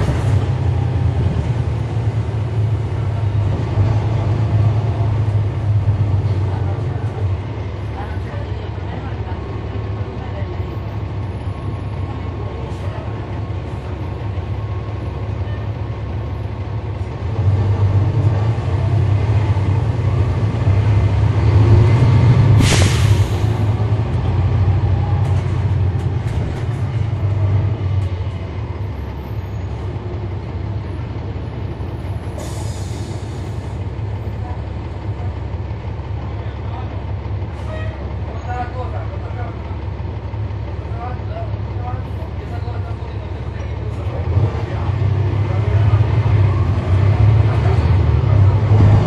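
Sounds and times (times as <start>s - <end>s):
bus diesel engine drone: 0.0s - 49.0s
air hiss burst: 22.5s - 23.6s.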